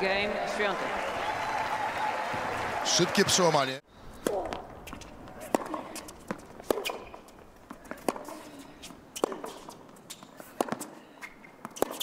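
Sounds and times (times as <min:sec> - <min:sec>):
racquet hitting tennis ball: 0:04.2 - 0:08.4
tennis ball bouncing: 0:04.2 - 0:12.0.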